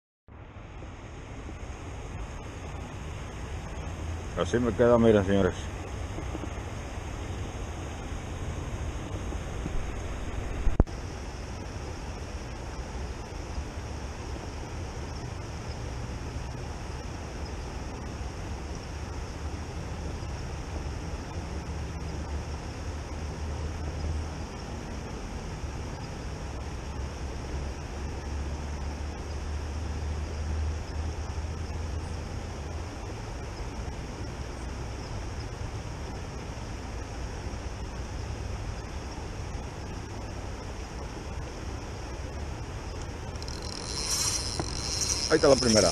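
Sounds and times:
river running over rocks: 1.1 - 14.9, 39.3 - 45.9.

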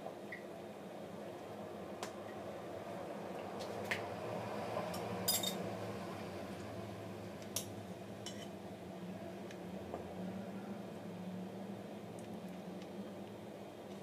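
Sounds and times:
metal utensil clinking on glass: 5.3 - 5.6.

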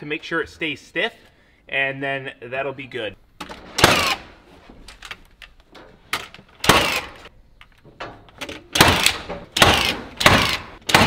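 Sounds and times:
framing nailer firing: 3.7 - 4.3, 6.6 - 7.3, 8.7 - 11.0.

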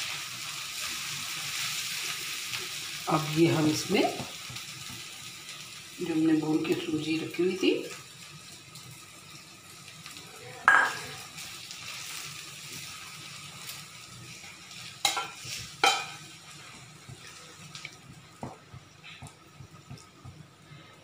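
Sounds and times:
pan sizzling softly: 0.0 - 21.0
knocks against pan: 10.7 - 11.1.

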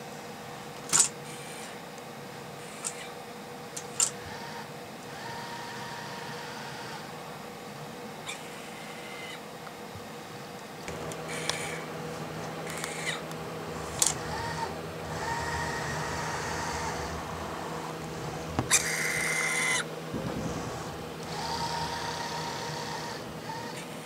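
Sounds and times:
steady electrical hum: 0.0 - 24.0
hissing whine: 10.8 - 24.0
robotic arm motors whining: 10.9 - 24.0.

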